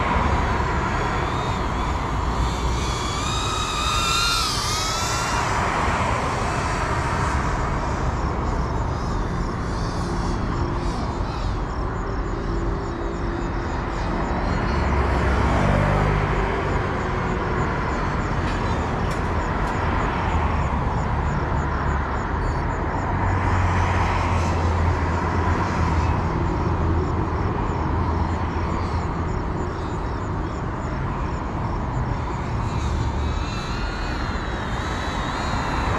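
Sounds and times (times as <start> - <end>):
drone propellers whining: 0.0 - 22.3, 24.5 - 35.9.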